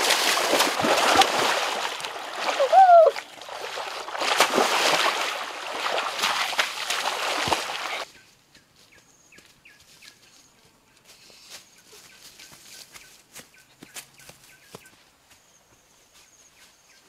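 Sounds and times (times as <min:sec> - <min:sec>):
water splashing and churning: 0:00.0 - 0:08.0.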